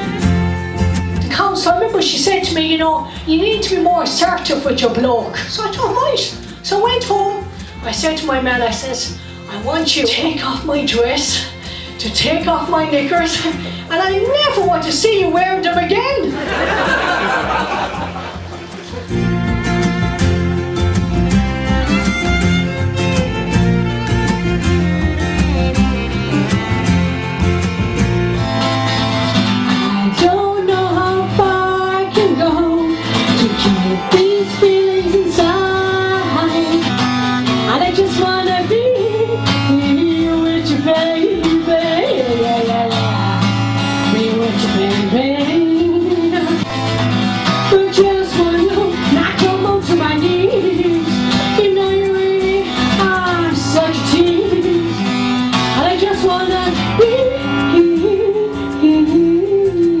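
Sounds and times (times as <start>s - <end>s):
acoustic guitar: 0.0s - 60.0s
woman singing: 1.2s - 16.4s, 29.9s - 46.7s, 47.5s - 60.0s.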